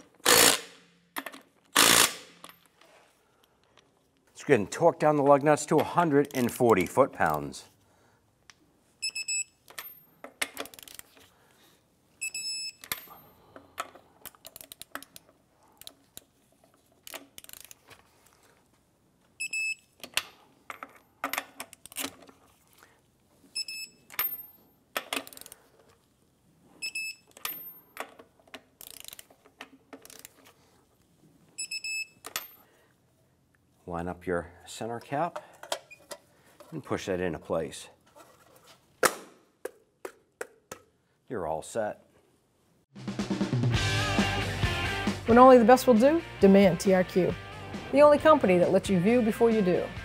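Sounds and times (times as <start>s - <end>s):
torque wrench ratcheting clicks: 0.2s - 0.6s, 1.8s - 2.2s, 17.0s - 17.8s, 28.8s - 29.3s.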